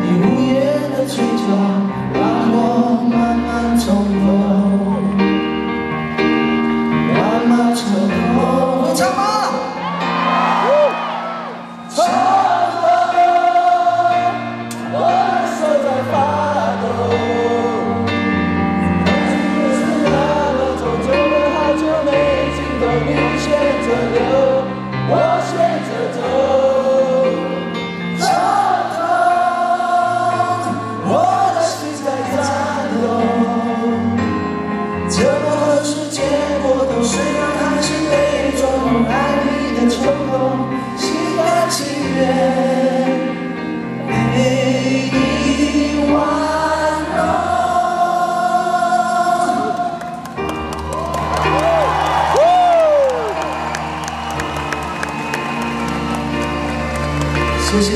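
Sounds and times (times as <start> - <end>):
man singing: 0.0 - 5.5, 7.0 - 9.7, 15.0 - 18.3, 19.0 - 50.2, 57.6 - 57.9
keyboard: 0.0 - 57.9.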